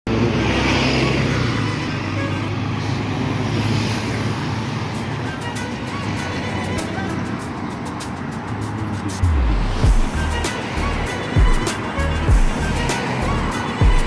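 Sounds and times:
bus passing close: 0.1 - 14.0
car traffic noise: 0.1 - 14.0
music: 4.9 - 14.0
high ticking beat: 5.5 - 14.0.

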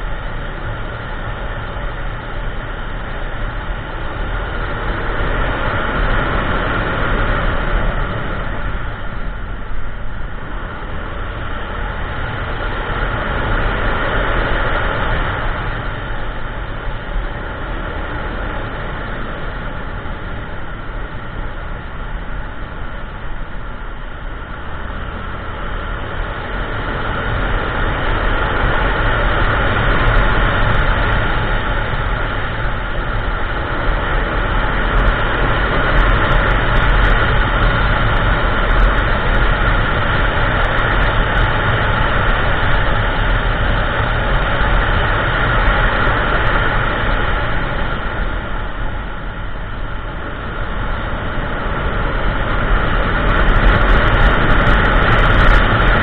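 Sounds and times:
road rumble: 0.0 - 56.0
scooter engine: 0.0 - 56.0
wind rushing over microphone: 0.0 - 56.0.

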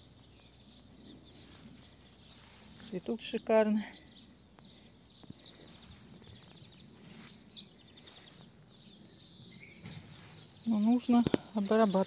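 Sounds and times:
faint outdoor ambience: 0.0 - 12.0
high bird chirps: 3.9 - 12.0.

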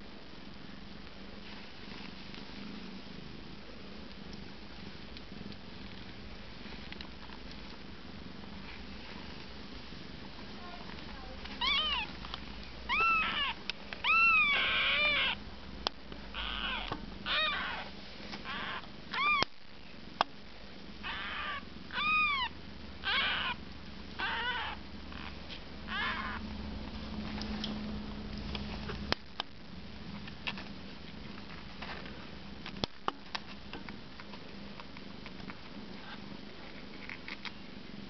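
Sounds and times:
kittens mewing: 11.5 - 12.2, 12.9 - 15.4, 16.3 - 19.5, 21.0 - 23.6, 24.2 - 26.4.

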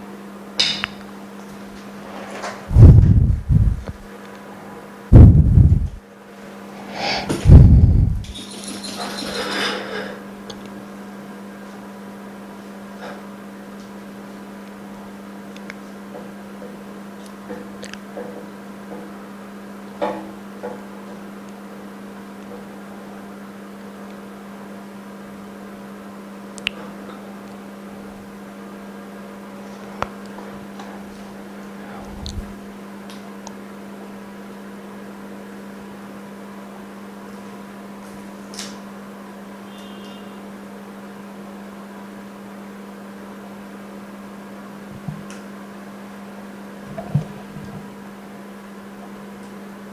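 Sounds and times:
machinery humming: 2.7 - 4.2, 5.1 - 8.4.

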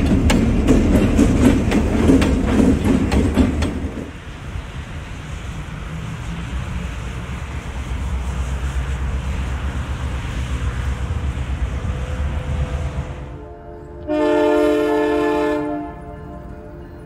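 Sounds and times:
wind-like noise: 0.0 - 13.4
train rumbling: 0.0 - 17.0.

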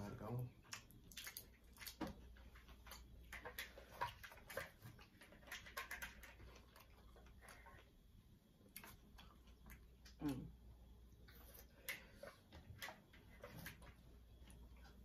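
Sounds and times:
shells clicking and wet smacks: 0.6 - 7.5.

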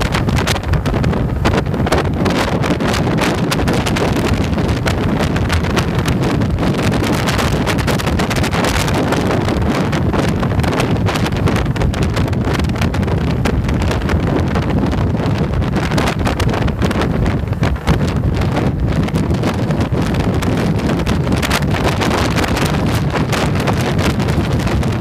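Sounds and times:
road noise: 0.0 - 25.0
wind buffeting microphone: 0.0 - 25.0.

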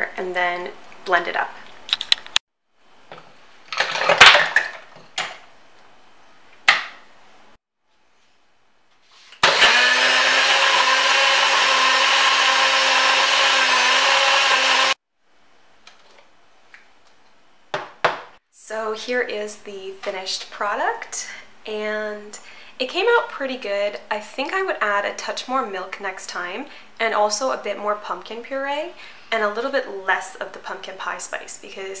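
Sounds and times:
blender motor running: 9.4 - 15.0.

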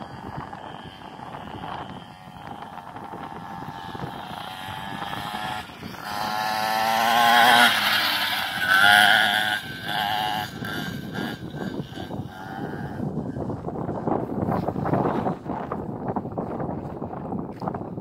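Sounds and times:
mini bike motor running: 0.0 - 15.5.

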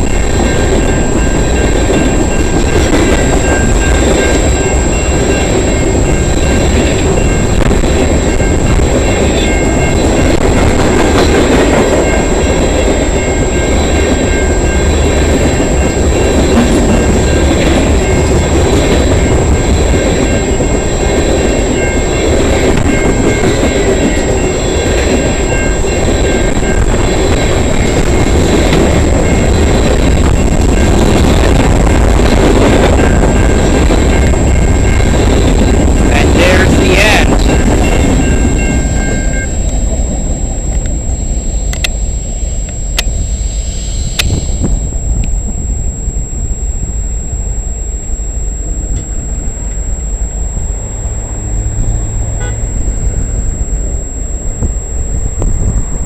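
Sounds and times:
train wheels clattering on rails: 0.0 - 41.0.

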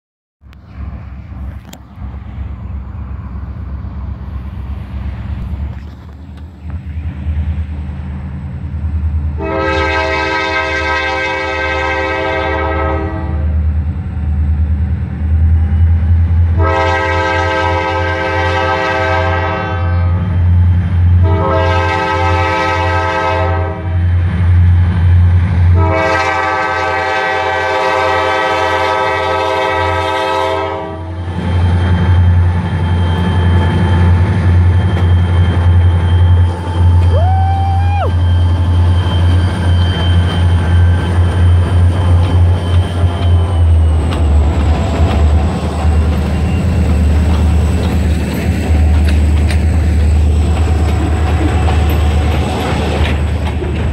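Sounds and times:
diesel engine drone: 0.4 - 10.0
train wheel noise: 0.4 - 53.9
locomotive air horn: 9.4 - 13.6, 16.5 - 20.3, 21.2 - 24.1, 25.8 - 32.2.

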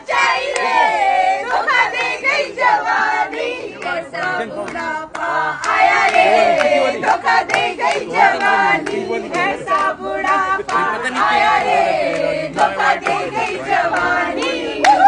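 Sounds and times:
women singing and shouting: 0.0 - 15.0
hand claps: 0.5 - 0.8, 4.6 - 11.3, 11.9 - 15.0.

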